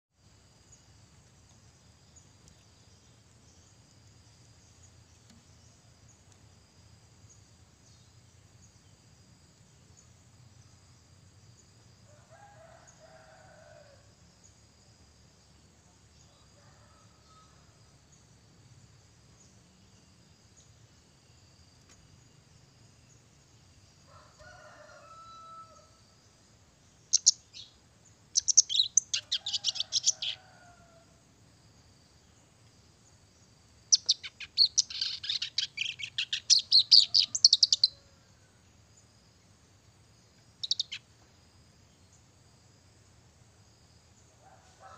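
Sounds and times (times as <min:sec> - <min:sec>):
warbler chattering song: 0:27.0 - 0:30.4, 0:33.9 - 0:37.9, 0:40.6 - 0:41.0.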